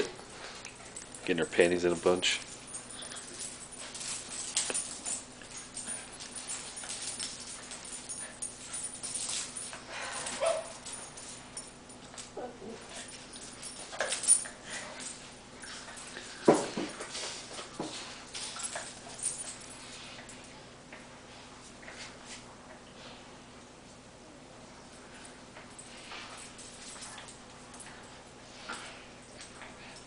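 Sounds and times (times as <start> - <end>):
paws scuffling on tile: 0.0 - 20.3
dogs whining and yipping: 10.0 - 10.9.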